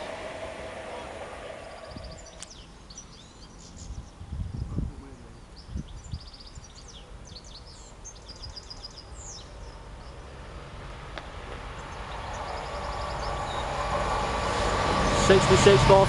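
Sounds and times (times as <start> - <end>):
diesel locomotive rumble: 0.0 - 3.3, 9.2 - 16.0
small birds chirping: 1.5 - 10.4, 11.6 - 13.9.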